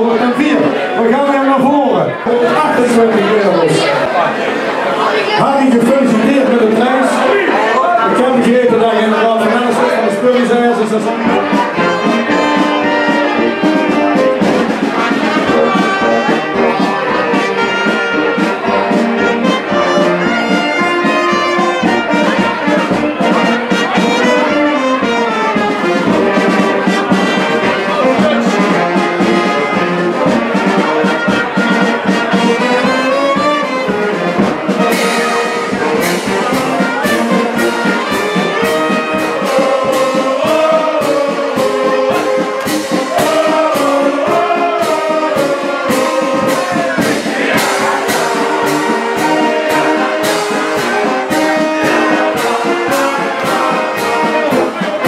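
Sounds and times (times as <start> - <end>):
brass band music: 0.0 - 55.0
percussion: 9.4 - 55.0.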